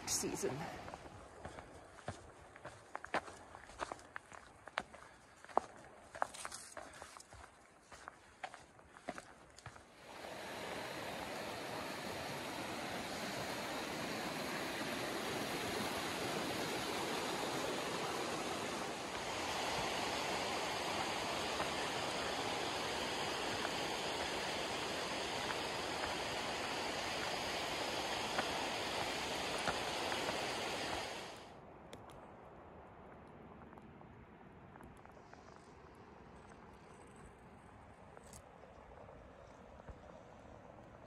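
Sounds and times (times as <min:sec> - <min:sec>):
fast-flowing stream rushing: 0:10.0 - 0:31.4.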